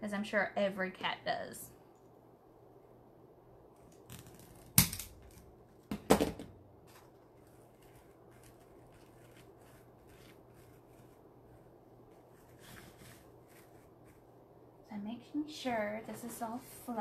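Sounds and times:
mesh crinkling and rustling: 0:06.8 - 0:14.4.

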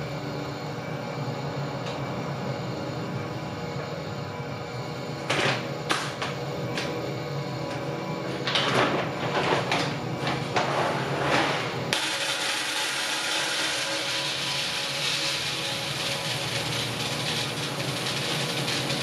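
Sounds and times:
coffee beans pouring into pitcher: 0:12.0 - 0:19.0.

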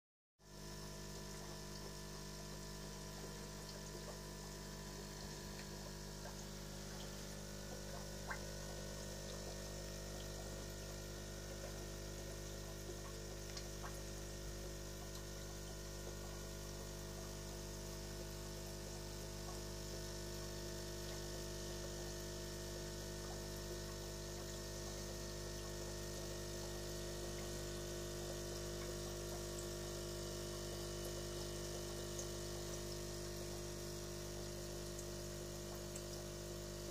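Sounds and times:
aquarium filter pump humming: 0:00.4 - 0:36.9
circulating water: 0:00.5 - 0:36.9
faint ticks: 0:15.0 - 0:15.8.

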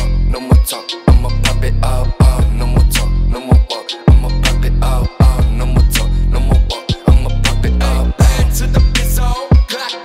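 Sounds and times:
deep bass notes: 0:00.0 - 0:00.4, 0:01.1 - 0:03.4, 0:04.1 - 0:09.4
sharp percussion hits: 0:00.0 - 0:09.7
hip hop music: 0:00.0 - 0:10.0.

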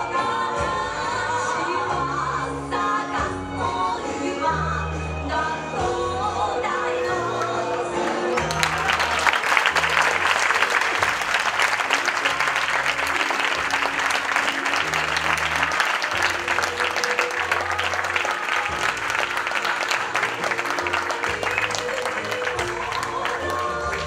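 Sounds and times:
audience applauding: 0:07.4 - 0:24.0.

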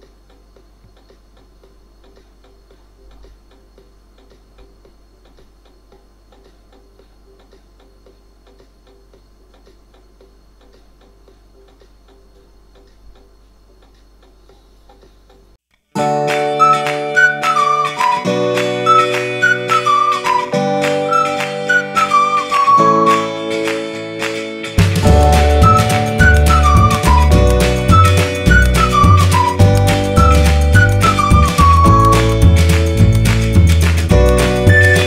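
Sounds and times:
low electrical hum: 0:00.0 - 0:15.9.

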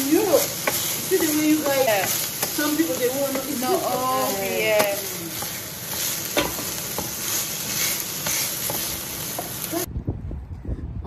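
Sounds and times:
chicken sizzling in a frying pan: 0:00.0 - 0:09.9
wooden spatula scraping a pan: 0:00.0 - 0:09.9
low rumble: 0:09.9 - 0:11.0.

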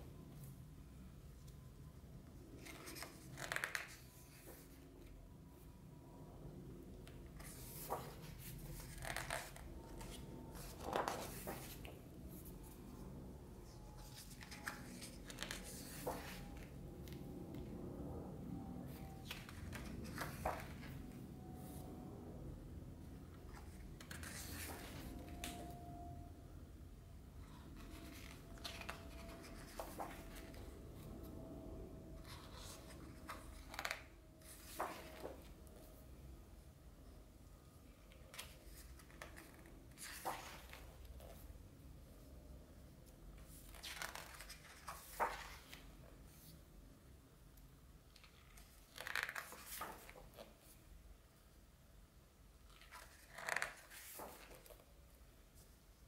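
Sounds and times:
book pages turning: 0:02.6 - 0:05.1, 0:07.0 - 0:13.0, 0:13.6 - 0:17.7, 0:18.9 - 0:21.8, 0:23.5 - 0:25.7, 0:27.5 - 0:31.1, 0:32.2 - 0:35.8, 0:38.0 - 0:41.4, 0:43.4 - 0:46.5, 0:48.1 - 0:50.8, 0:52.7 - 0:54.9.

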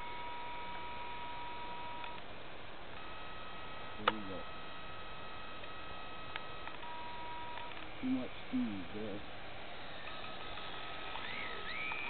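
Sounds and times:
model plane motor whine: 0:00.0 - 0:02.3, 0:02.9 - 0:12.0
sharp click: 0:04.0 - 0:04.3.

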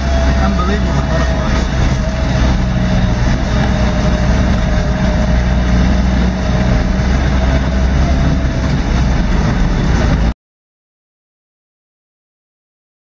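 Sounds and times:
faint drivetrain whine: 0:00.0 - 0:10.3
vehicle engine rumbling from inside: 0:00.0 - 0:10.4.

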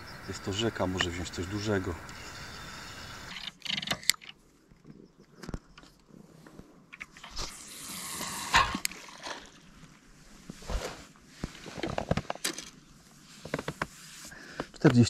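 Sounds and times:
fishing line running off reel: 0:07.1 - 0:09.5.

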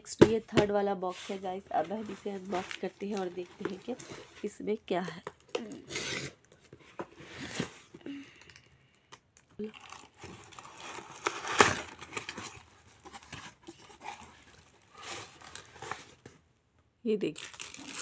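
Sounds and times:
cardboard box tearing: 0:05.7 - 0:06.4, 0:09.7 - 0:16.2.

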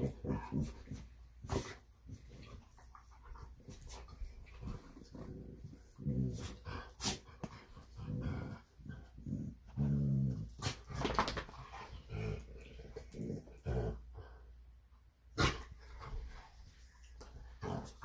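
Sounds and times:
dogs growling while play-fighting: 0:00.0 - 0:02.6, 0:04.4 - 0:14.4, 0:17.5 - 0:18.0.

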